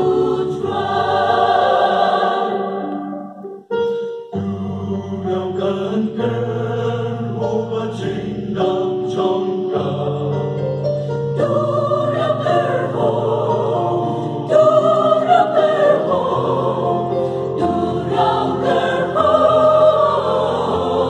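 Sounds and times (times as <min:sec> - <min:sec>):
mixed choir singing: 0:00.0 - 0:03.4, 0:04.4 - 0:10.7, 0:11.3 - 0:21.0
electronic keyboard: 0:00.0 - 0:04.7.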